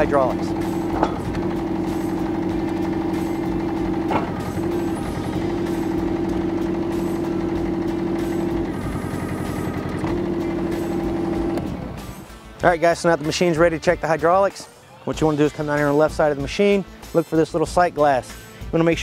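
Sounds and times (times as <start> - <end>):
steady whine: 0.0 - 12.3
excavator engine and hydraulics: 0.0 - 12.5.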